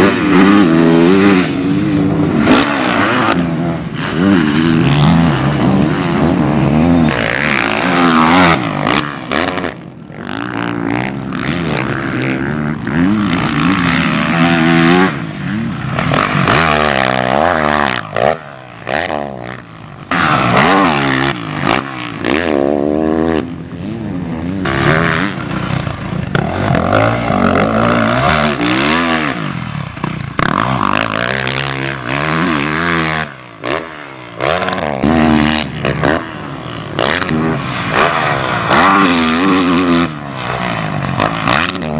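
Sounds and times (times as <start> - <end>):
motocross bike engine revving: 0.0 - 41.9.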